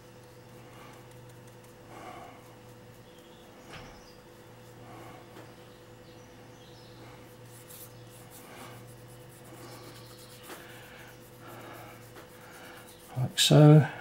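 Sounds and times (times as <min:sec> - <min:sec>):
low steady hum: 0:00.0 - 0:14.0
paintbrush scratching: 0:00.2 - 0:03.3, 0:07.2 - 0:13.7.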